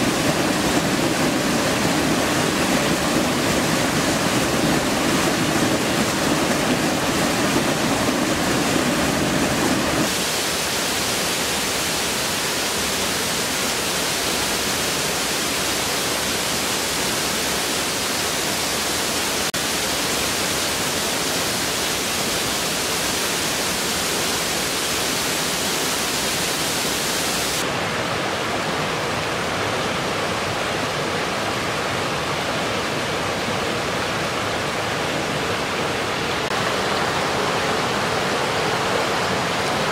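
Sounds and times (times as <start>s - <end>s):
waterfall rushing over rocks: 0.0s - 39.9s.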